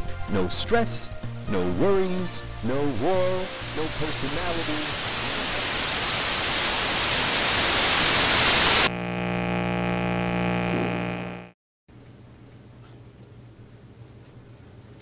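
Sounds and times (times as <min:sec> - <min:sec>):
loud static hiss: 0:02.0 - 0:11.6
steady electrical hum: 0:08.8 - 0:15.0.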